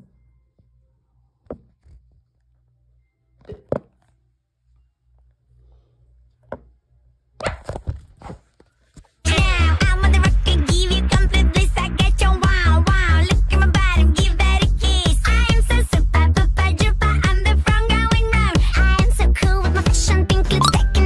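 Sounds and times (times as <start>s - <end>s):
electronic dance music: 20.6s - 21.0s.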